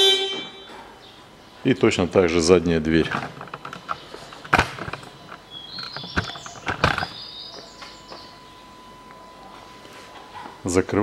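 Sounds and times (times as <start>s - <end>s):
faint steady tone: 5.3s - 11.0s.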